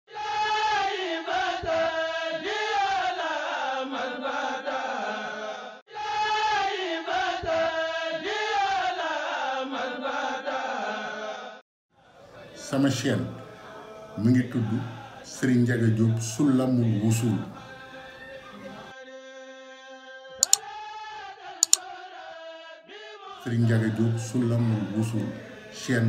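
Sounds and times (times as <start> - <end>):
person chanting melodically: 23.5 - 26.0.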